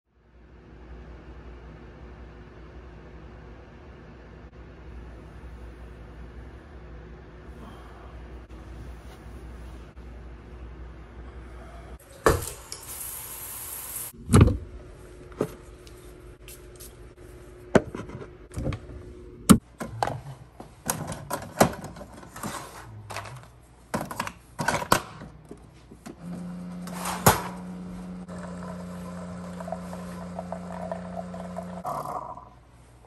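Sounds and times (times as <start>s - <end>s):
coffee maker brewing hum: 25.9s - 33.0s.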